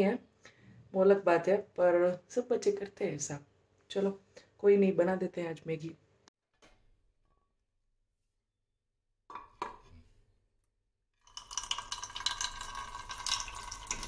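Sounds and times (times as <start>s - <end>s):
water stream into pan: 11.2s - 14.0s.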